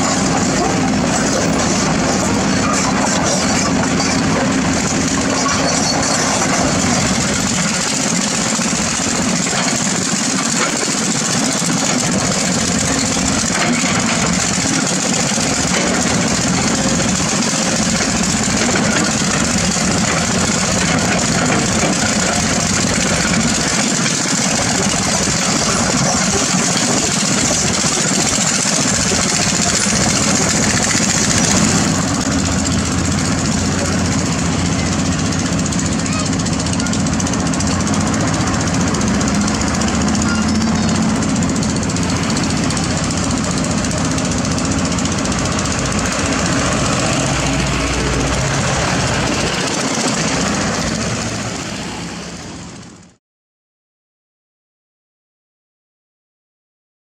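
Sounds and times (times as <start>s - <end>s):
excavator diesel engine running: 0.0s - 53.2s.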